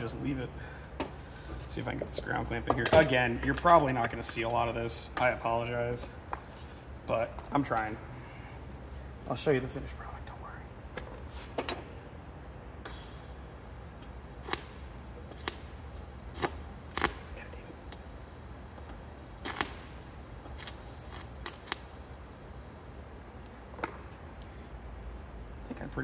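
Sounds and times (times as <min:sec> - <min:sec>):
steady low hum: 0:00.0 - 0:26.0
welding arc clicks and crackles: 0:14.0 - 0:22.0.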